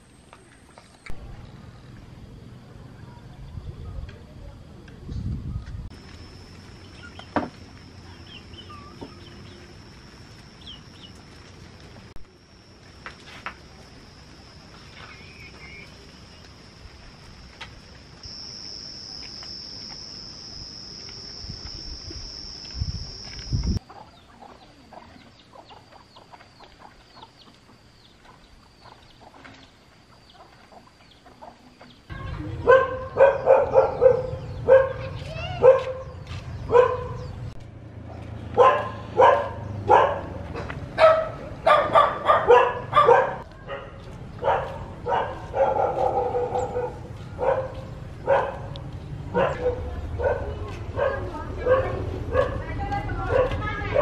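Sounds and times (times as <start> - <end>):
high-pitched drone: 5.9 - 23.8
small dog barking: 32.6 - 37.3, 38.6 - 54.0.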